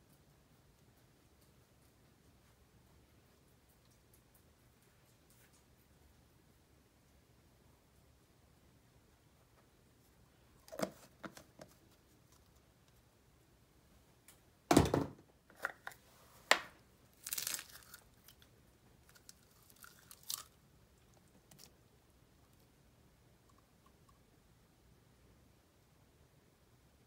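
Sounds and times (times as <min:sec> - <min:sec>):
thump: 0:14.7 - 0:15.2
slime handling noises: 0:15.5 - 0:21.8.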